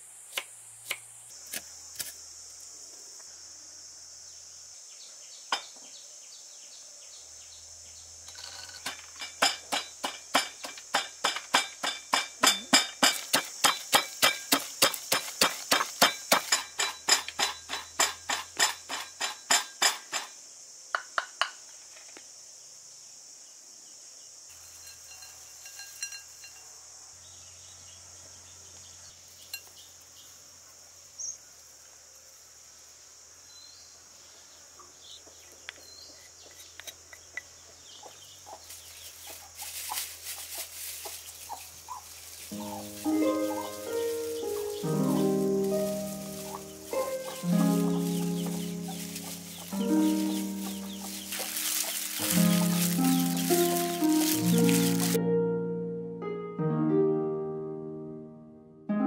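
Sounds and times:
high insect drone: 0.0 - 55.2
faint clinks of bowl and utensils: 24.5 - 26.8.

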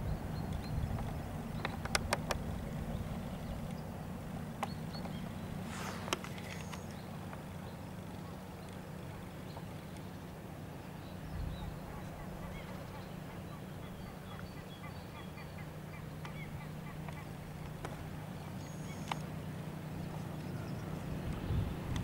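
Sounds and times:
steady low hum: 0.0 - 22.0
brief low rumble: 5.6 - 6.6.

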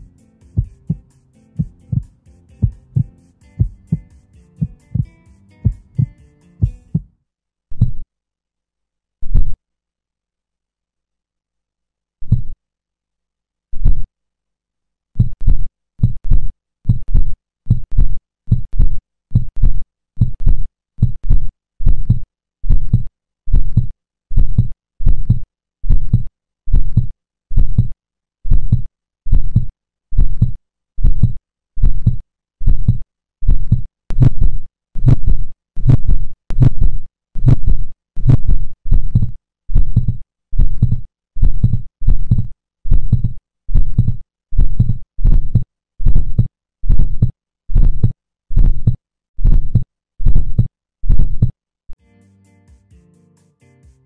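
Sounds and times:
heartbeat lub-dub: 0.0 - 7.1, 28.5 - 51.5.

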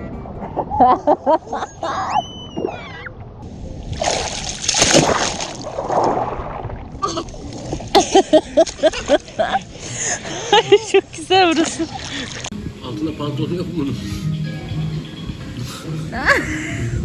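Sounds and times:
water splashing and sloshing: 2.7 - 12.6.

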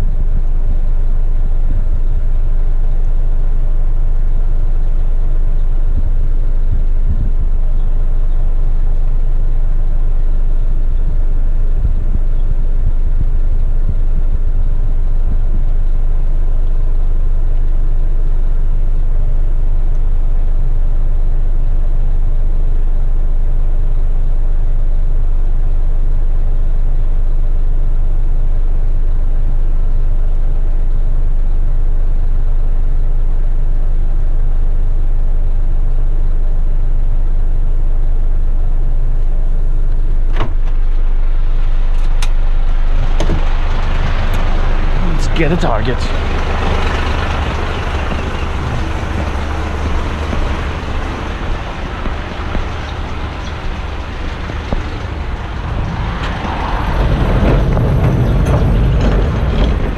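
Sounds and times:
diesel truck engine running: 40.6 - 59.9.

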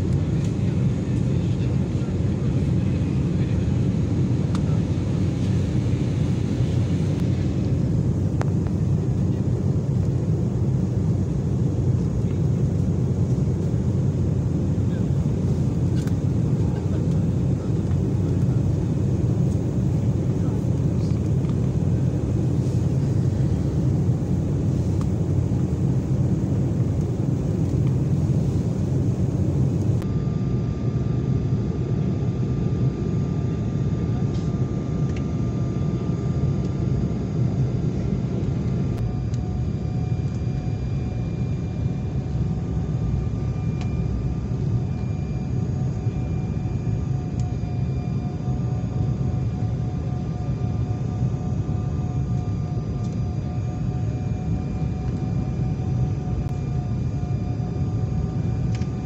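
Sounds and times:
jet engines and airflow rushing: 0.0 - 59.0
faint whining tones: 38.6 - 59.0.

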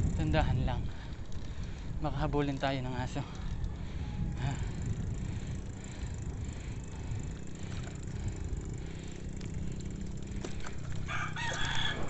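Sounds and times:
wind and bicycle road noise: 0.0 - 12.0
rooster crowing: 3.4 - 4.4, 11.0 - 12.0.

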